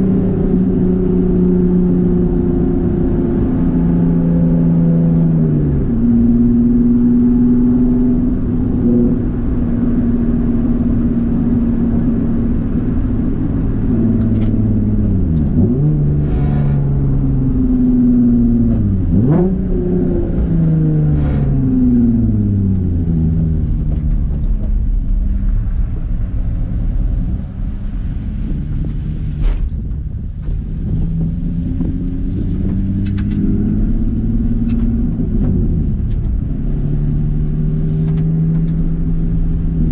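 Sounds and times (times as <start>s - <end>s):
car engine running at low revs: 0.0s - 39.9s.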